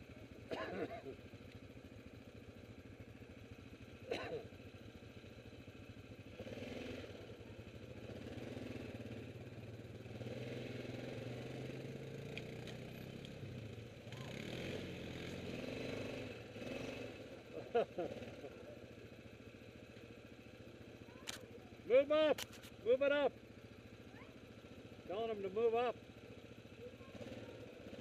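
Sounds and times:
quad engine running at low revs: 0:00.0 - 0:28.0.

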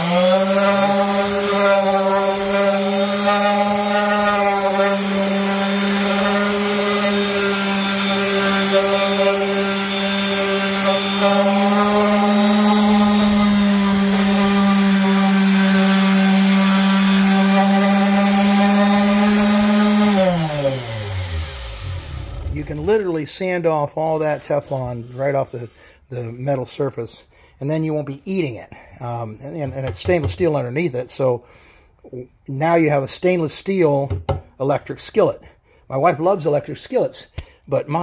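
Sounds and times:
orbital sander running: 0:00.0 - 0:23.0
grit hissing on metal: 0:24.2 - 0:26.0.

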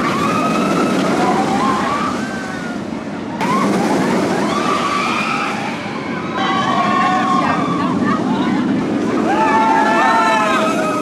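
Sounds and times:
roller coaster running on track: 0:00.0 - 0:11.0
crowd shouting and screaming: 0:03.4 - 0:11.0.

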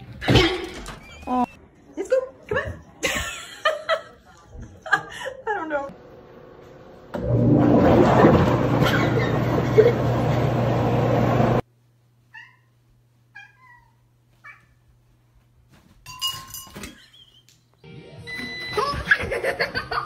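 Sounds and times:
cat meowing: 0:13.3 - 0:14.8.

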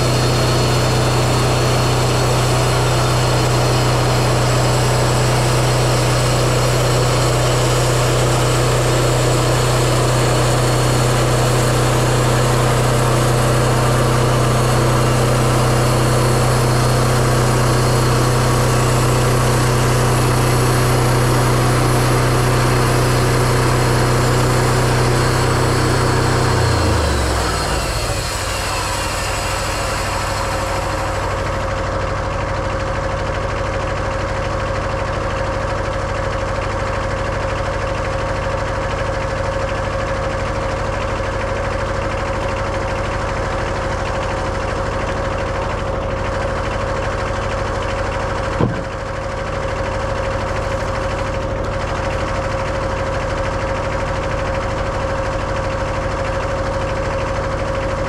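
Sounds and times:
diesel engine running steadily: 0:00.0 - 0:58.0
sharp knock: 0:48.6 - 0:49.0.

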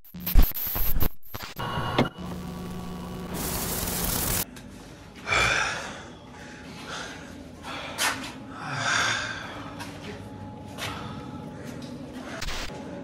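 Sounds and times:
tape static hiss: 0:00.1 - 0:04.4.

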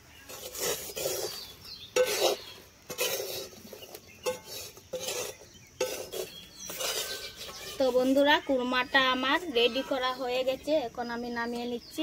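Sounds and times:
metal spatula scraping a pan: 0:00.1 - 0:10.0.

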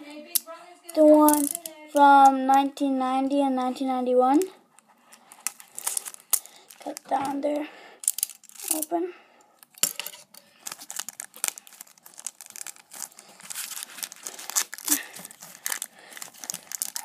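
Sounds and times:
wrapper crinkling and tearing: 0:05.1 - 0:07.3, 0:08.0 - 0:08.9, 0:09.6 - 0:17.0.

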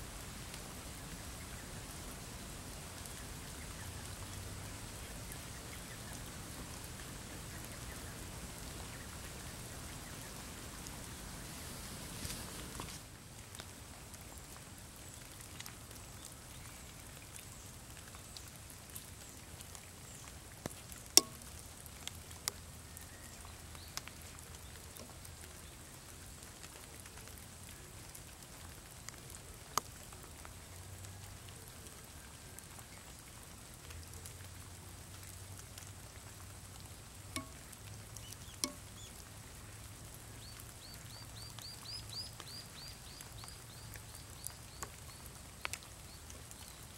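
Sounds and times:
light steady rain: 0:00.0 - 0:46.9
sharp drips: 0:14.4 - 0:25.7, 0:33.9 - 0:46.9.

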